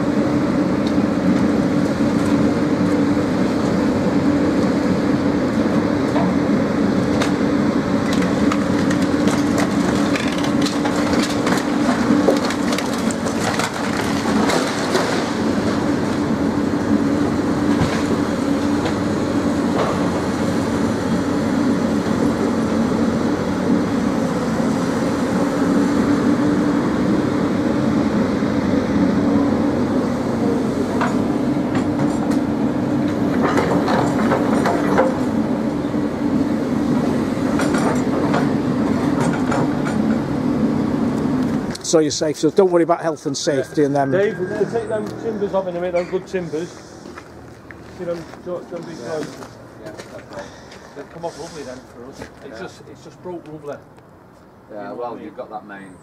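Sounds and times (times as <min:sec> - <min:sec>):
excavator diesel engine: 0:00.0 - 0:55.4
timbers cracking and snapping: 0:08.0 - 0:15.4.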